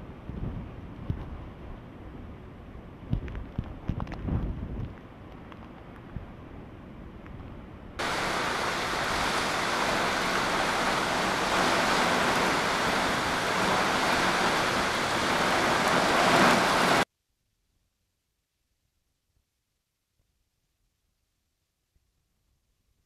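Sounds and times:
faint storm noise: 0.0s - 17.1s
heavy rain with wind: 0.0s - 17.1s.

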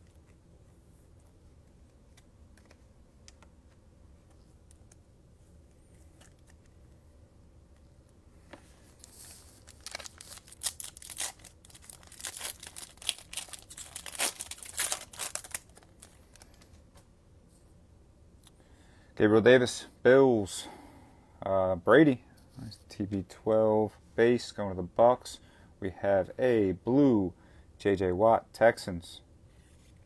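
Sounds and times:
foil card pack ripping: 9.6s - 16.5s.

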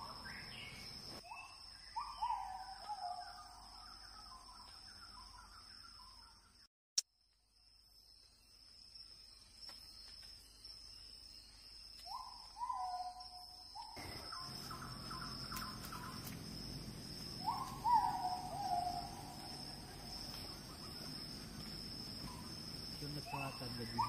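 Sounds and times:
insects buzzing: 0.0s - 1.9s, 7.4s - 24.0s
bird calling: 13.8s - 16.4s, 17.4s - 24.0s.

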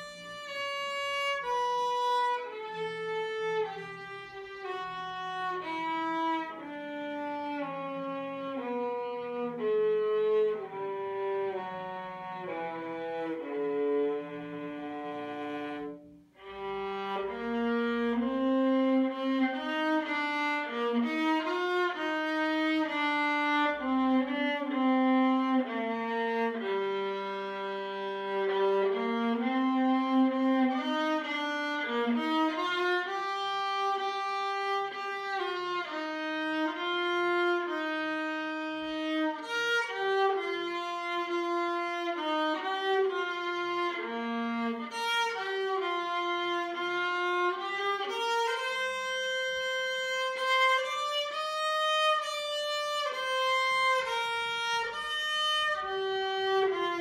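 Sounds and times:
bowed viola melody: 0.0s - 57.0s.

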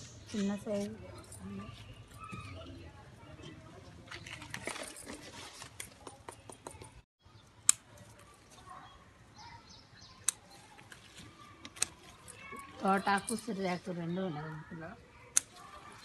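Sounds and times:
leaves and stems rustling: 10.3s - 14.6s.

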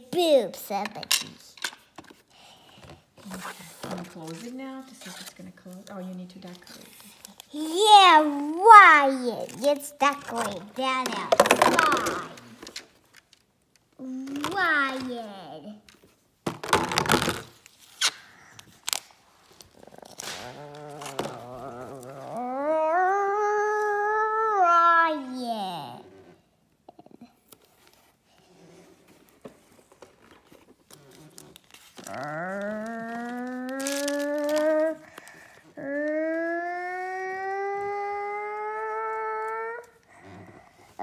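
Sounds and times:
plastic toy parts clacking: 10.2s - 12.8s.

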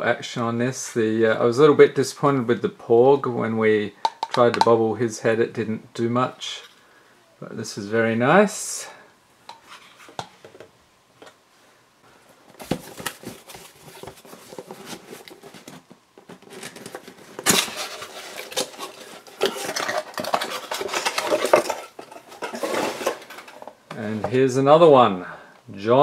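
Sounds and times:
cardboard box handled and opened: 12.5s - 21.7s
clicks and scrapes: 12.7s - 23.8s.

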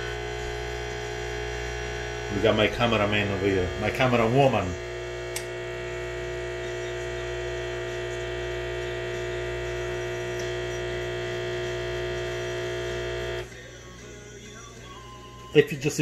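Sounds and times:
espresso machine pump humming: 0.0s - 13.5s.

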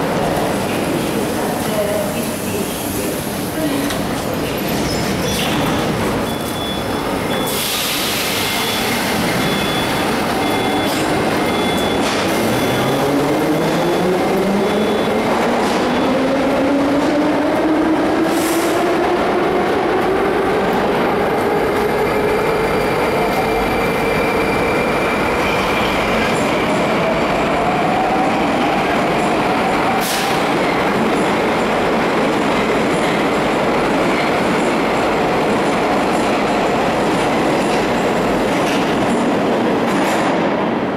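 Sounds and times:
high beep: 6.2s - 7.6s, 8.5s - 13.2s.

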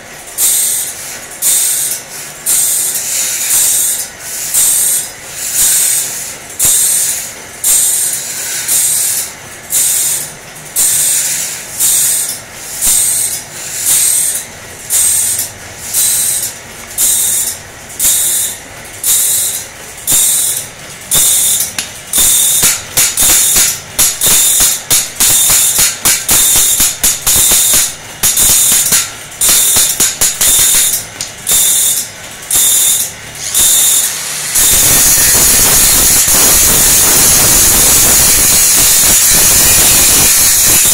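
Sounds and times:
angle grinder running: 0.4s - 40.9s
grinding machine rasping on blade: 0.4s - 40.9s
hammer tapping steel blade: 19.1s - 31.3s.

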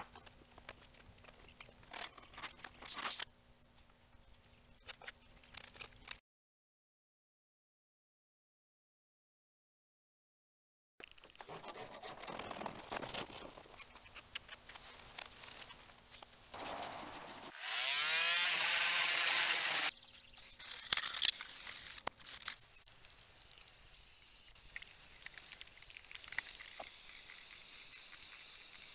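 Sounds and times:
scraping and rubbing on metal: 16.5s - 17.6s
aerosol spray can hissing: 21.4s - 28.9s.

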